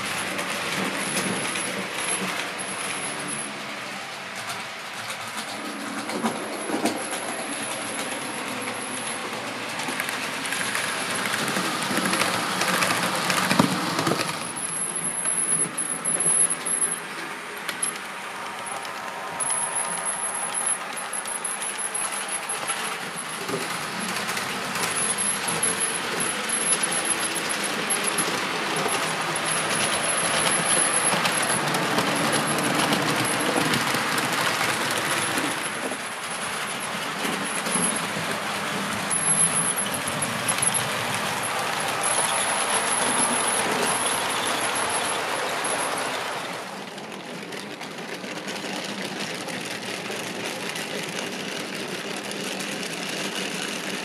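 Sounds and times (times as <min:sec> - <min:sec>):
model train wheels clattering: 0:00.0 - 0:54.0.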